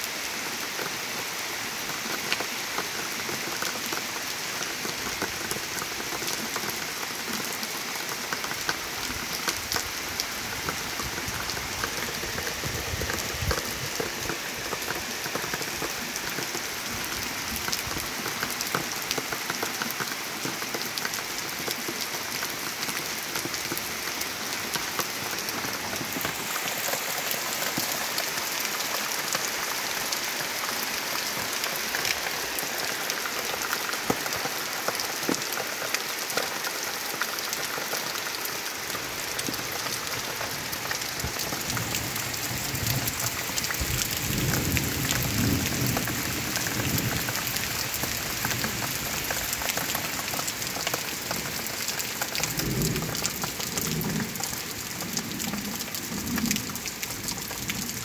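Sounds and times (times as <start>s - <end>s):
steady rain falling: 0.0s - 58.0s
raindrop ticks: 39.4s - 58.0s.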